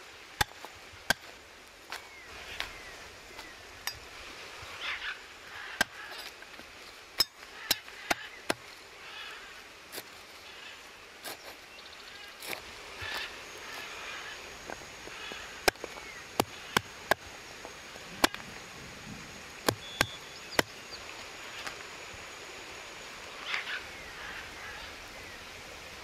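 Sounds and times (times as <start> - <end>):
cleaver chopping on wooden block: 15.6 - 17.3, 18.2 - 18.4, 19.6 - 20.7
faint chirps: 19.3 - 21.8.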